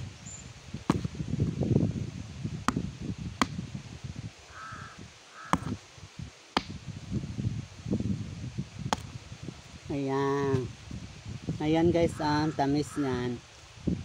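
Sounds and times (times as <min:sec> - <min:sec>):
bird calling: 0:04.5 - 0:05.7.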